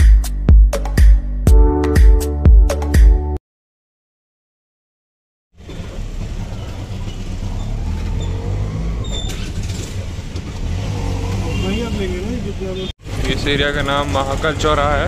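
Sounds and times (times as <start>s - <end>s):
motor and road rumble: 5.5s - 15.0s.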